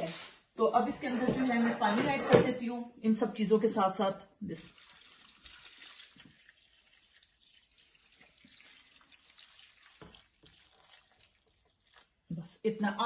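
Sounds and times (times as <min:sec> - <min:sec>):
water trickling into a pot: 0:04.4 - 0:12.3.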